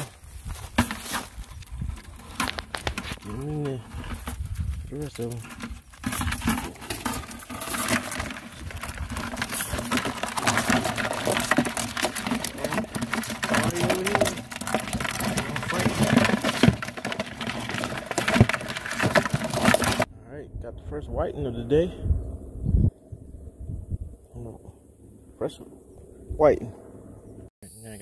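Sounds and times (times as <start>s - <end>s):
crabs scrabbling against plastic: 0.0s - 20.1s
crabs tipped into bucket: 5.2s - 20.1s.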